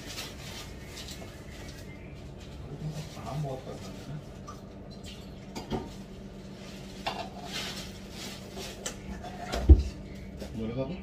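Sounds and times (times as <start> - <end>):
faint steady hum: 0.0 - 11.0
dishes and cutlery clinking: 4.9 - 6.0, 7.0 - 7.6.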